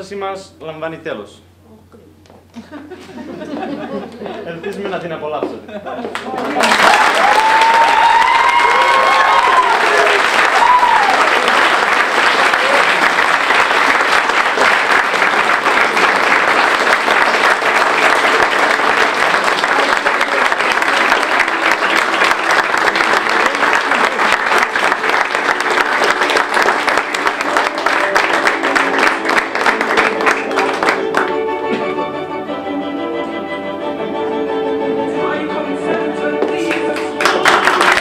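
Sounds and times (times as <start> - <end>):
audience clapping: 6.0 - 31.8, 36.4 - 38.0
music with sustained notes: 24.4 - 37.9.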